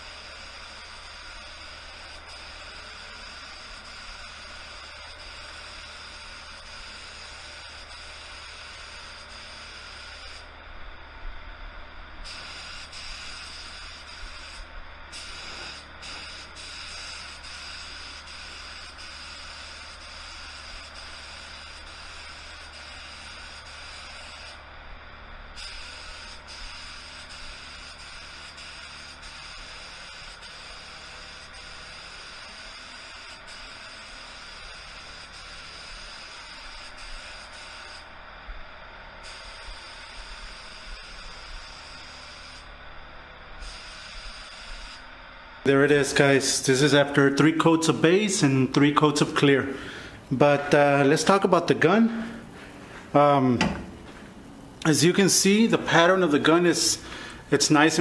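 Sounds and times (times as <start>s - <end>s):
spray gun hissing: 0.0s - 10.5s, 12.2s - 24.6s, 25.6s - 38.1s, 39.2s - 42.8s, 43.6s - 45.1s, 45.7s - 58.0s
low steady hum: 4.7s - 20.1s, 20.7s - 26.8s.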